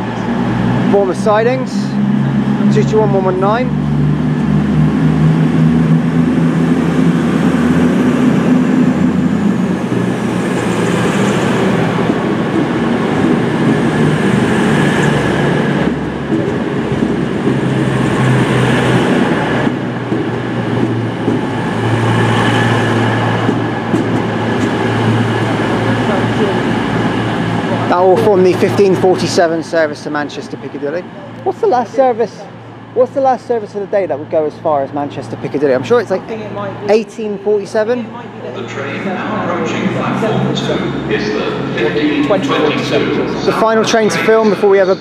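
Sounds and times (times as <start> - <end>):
carriages rumbling past: 0.0 - 45.0
train diesel engines: 0.0 - 45.0.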